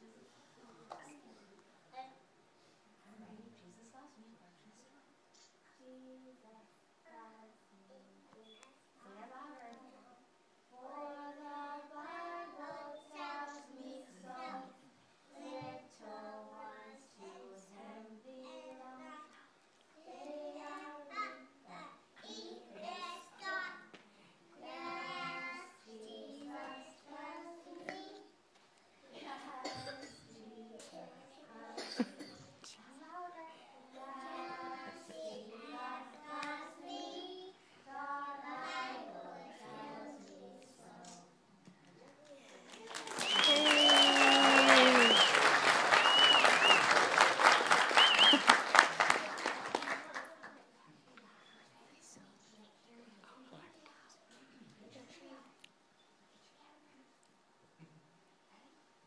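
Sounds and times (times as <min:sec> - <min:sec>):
young children singing: 0:10.7 - 0:19.4, 0:20.0 - 0:24.0, 0:24.6 - 0:28.3, 0:29.1 - 0:32.4, 0:33.3 - 0:41.4, 0:42.8 - 0:50.3.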